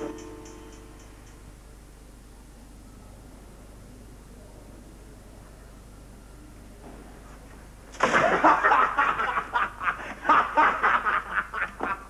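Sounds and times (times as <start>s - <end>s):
room hiss: 0.0s - 12.0s
boys laughing: 8.0s - 12.0s.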